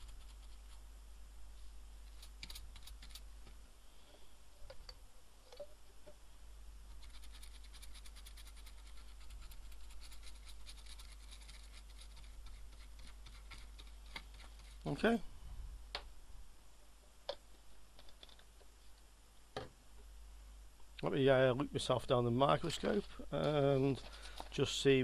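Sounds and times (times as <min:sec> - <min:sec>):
brush scrubbing circuit board: 0:00.0 - 0:00.8, 0:06.9 - 0:15.0.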